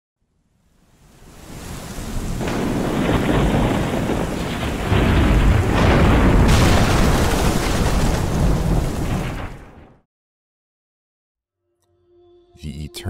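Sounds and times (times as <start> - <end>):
rain-like hiss: 0.5 - 5.0
deep rumbling booms: 2.5 - 9.8.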